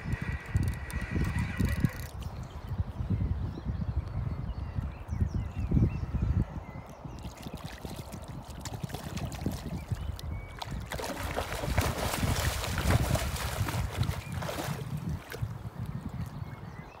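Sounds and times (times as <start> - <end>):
fish splashing in water: 7.2 - 15.5.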